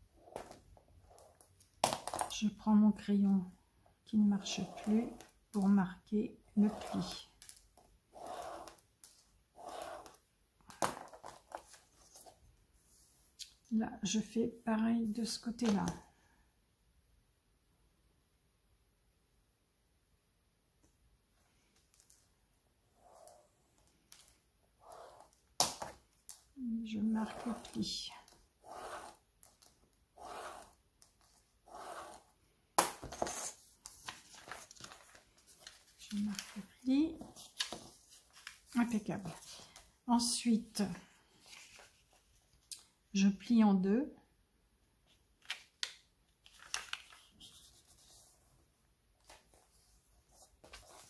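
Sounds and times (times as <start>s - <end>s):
soft rustling: 41.0s - 42.7s.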